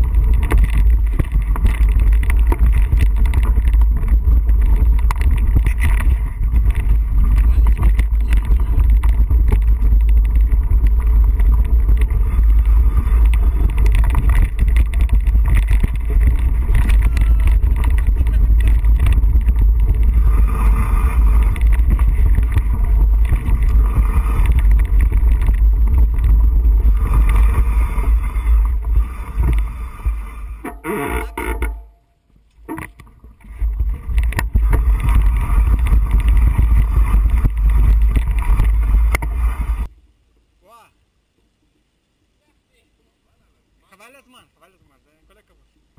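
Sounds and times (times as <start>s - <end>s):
heavy wind buffeting: 0.0s - 30.6s, 33.2s - 39.9s
bike rattling over stones: 0.0s - 31.9s, 32.6s - 39.9s.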